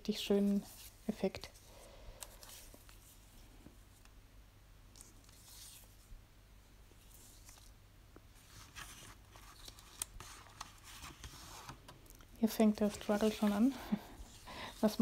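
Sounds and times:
paper rustling: 0.4s - 3.4s, 4.9s - 6.1s, 6.9s - 7.8s, 8.4s - 15.0s.

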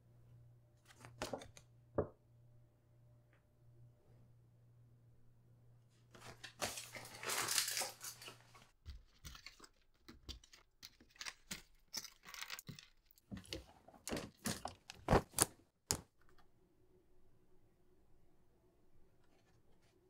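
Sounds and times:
paper ripping and rustling: 6.1s - 12.8s, 14.1s - 15.6s.

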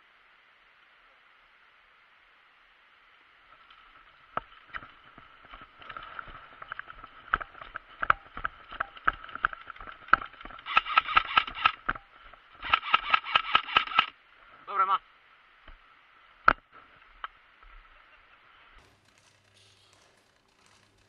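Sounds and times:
airsoft gun full-auto bursts: 8.3s - 14.1s.

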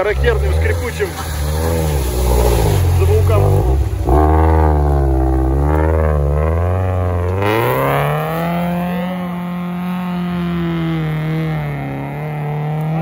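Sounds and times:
engine revving hard: 0.0s - 13.0s
vehicle creaking: 0.0s - 13.0s.

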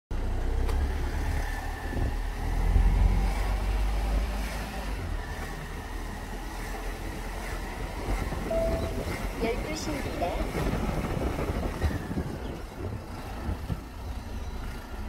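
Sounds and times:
wind buffeting microphone: 6.6s - 14.8s.

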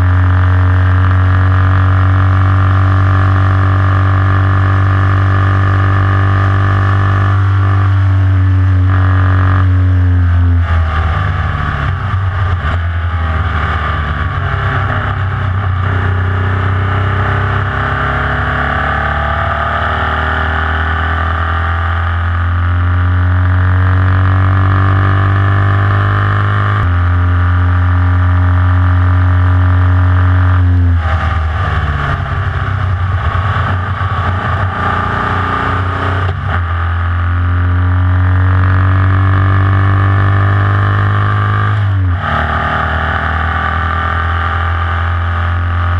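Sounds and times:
race car engine running hard: 0.0s - 45.9s.

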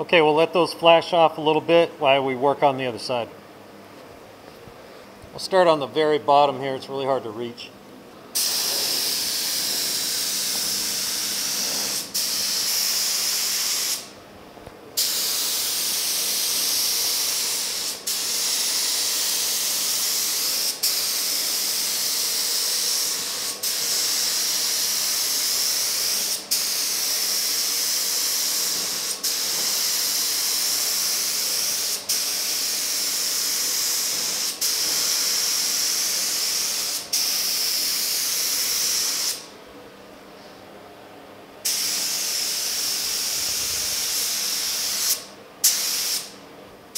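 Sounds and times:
spray gun hissing: 8.4s - 14.1s, 15.0s - 39.5s, 41.6s - 46.3s.

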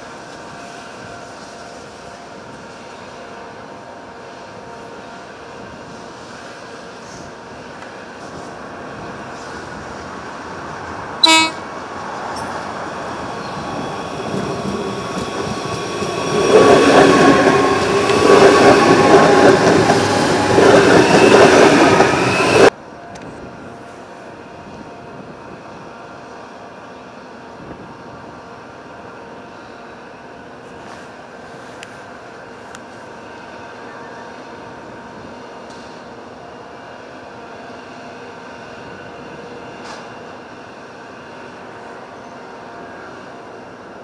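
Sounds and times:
train wheels and running gear: 10.8s - 23.5s, 35.5s - 36.2s, 37.1s - 44.0s
train horn toot: 11.2s - 11.7s.

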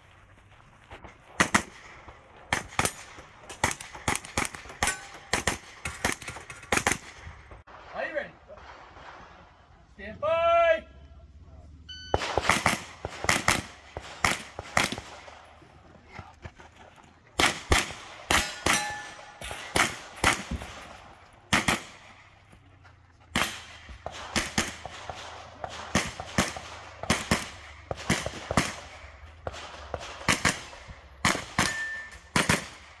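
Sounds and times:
metallic ring of steel target: 4.7s - 5.3s, 18.3s - 20.9s, 31.6s - 32.4s
rapid gunshots: 12.2s - 15.4s, 23.3s - 33.0s.

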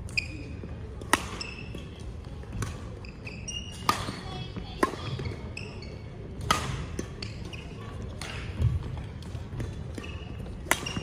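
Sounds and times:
rackets smacking shuttlecock: 1.0s - 5.3s, 6.4s - 11.0s.

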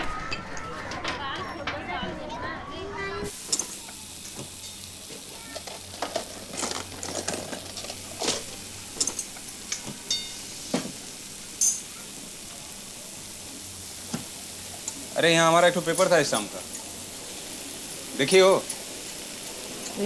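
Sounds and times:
food sizzling in a pan: 2.8s - 20.0s
metal utensils clinking: 3.3s - 12.0s, 14.8s - 17.0s.

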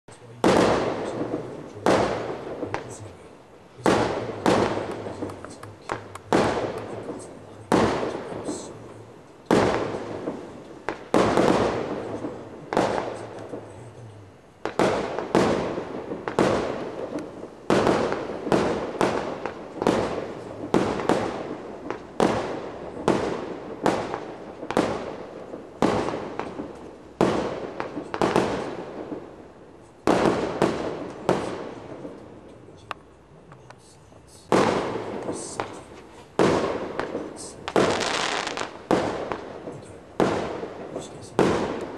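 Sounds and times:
fireworks bangs: 0.1s - 41.9s.

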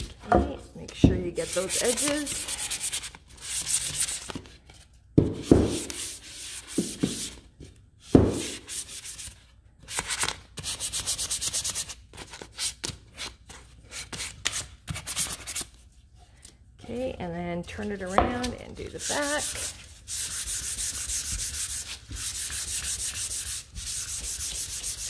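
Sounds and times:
sandpaper rubbing on wood: 1.3s - 4.3s, 18.9s - 25.0s.

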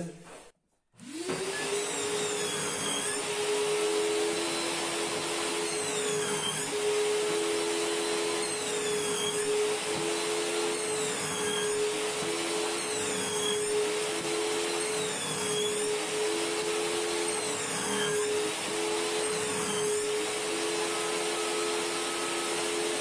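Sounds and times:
table saw whining: 1.0s - 23.0s.

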